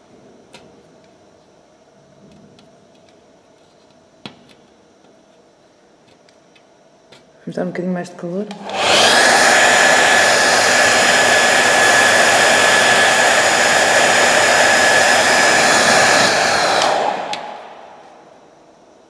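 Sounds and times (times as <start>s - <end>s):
hair dryer blowing: 8.5s - 18.4s.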